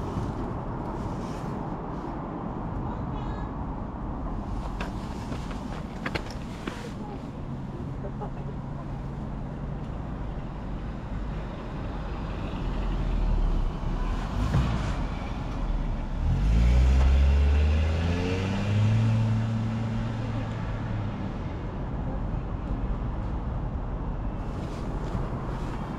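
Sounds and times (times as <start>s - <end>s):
vehicle engine accelerating: 12.6s - 21.3s.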